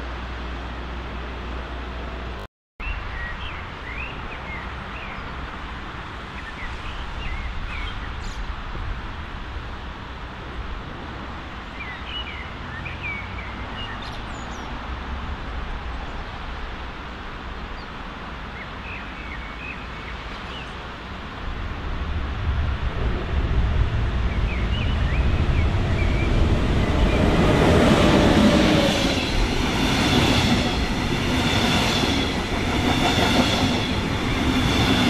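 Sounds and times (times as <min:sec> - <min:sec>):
low rumble: 0:21.5 - 0:28.4.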